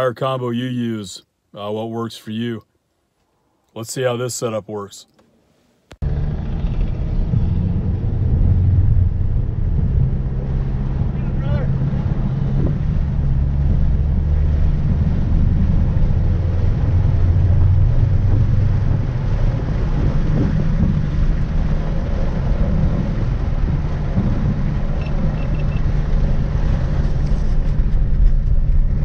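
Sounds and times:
car engine running: 0:06.0 - 0:29.0
tyre and wind noise: 0:06.1 - 0:29.0.

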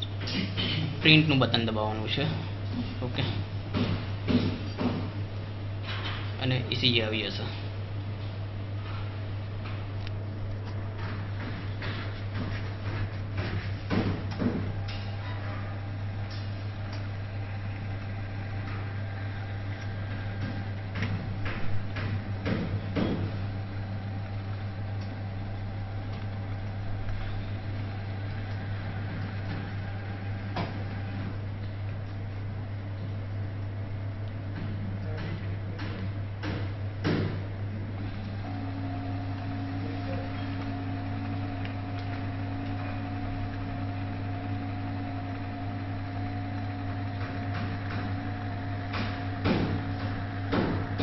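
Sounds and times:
thermal printer printing: 0:11.0 - 0:31.5, 0:35.0 - 0:51.0.

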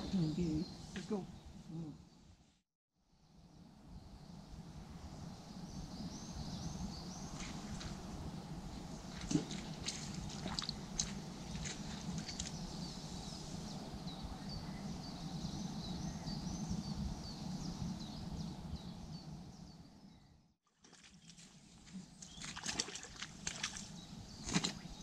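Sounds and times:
low outdoor hum: 0:03.2 - 0:25.0
songbirds chirping and singing: 0:05.4 - 0:20.4.

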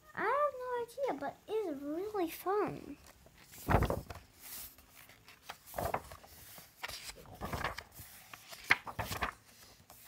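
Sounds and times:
book pages turning: 0:03.0 - 0:10.0.

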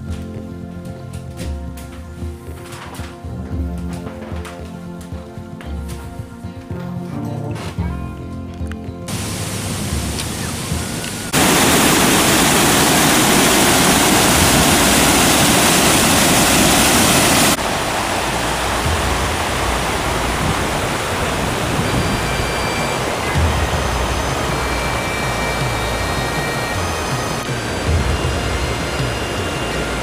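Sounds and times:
waterfall roaring: 0:09.1 - 0:30.0.

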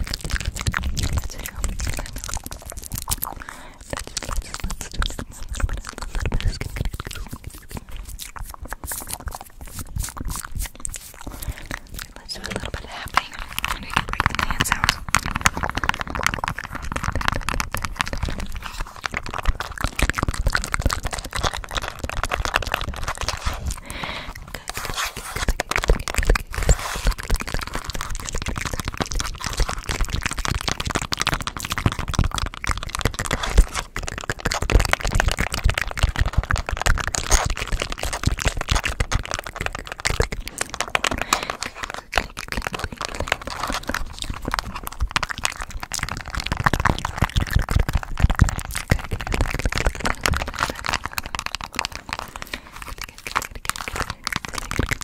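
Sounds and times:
hand movement crackling: 0:00.0 - 0:35.7
mouth sounds: 0:00.0 - 0:55.0.

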